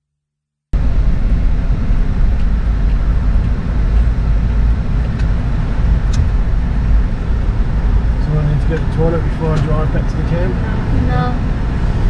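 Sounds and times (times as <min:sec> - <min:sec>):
car road and engine rumble: 0:00.8 - 0:12.0.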